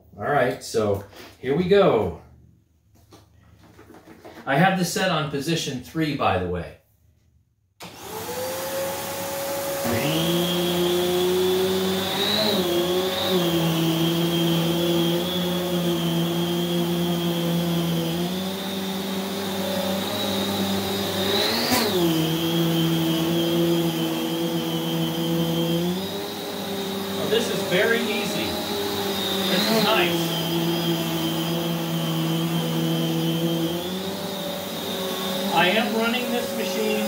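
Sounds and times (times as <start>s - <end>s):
vacuum cleaner humming and whining: 7.8s - 37.0s.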